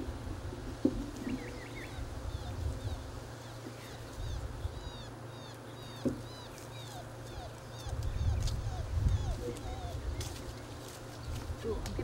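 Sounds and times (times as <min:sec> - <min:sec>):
steady low rumble: 0:06.3 - 0:12.0.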